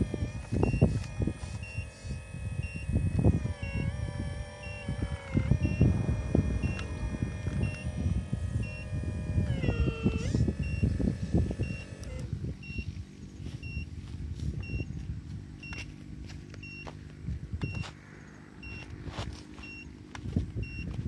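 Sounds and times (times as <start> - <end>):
pump motor whining: 0.0 - 14.9
low steady hum: 0.0 - 21.0.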